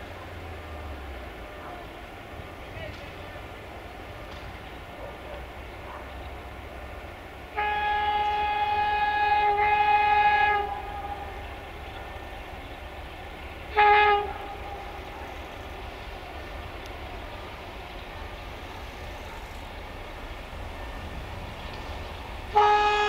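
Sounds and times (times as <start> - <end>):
locomotive air horn blasts: 7.5 - 11.6, 13.7 - 15.2, 22.5 - 23.0.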